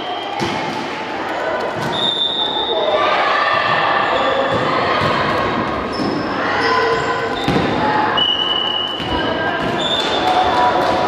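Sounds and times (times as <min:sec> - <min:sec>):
volleyballs thudding: 0:07.3 - 0:08.0.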